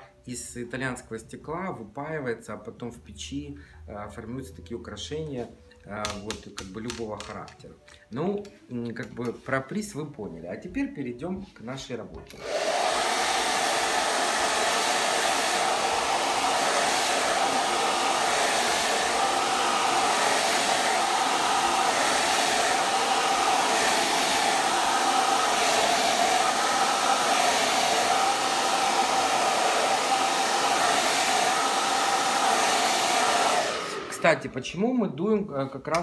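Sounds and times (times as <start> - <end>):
hair dryer running: 12.3 - 34.4.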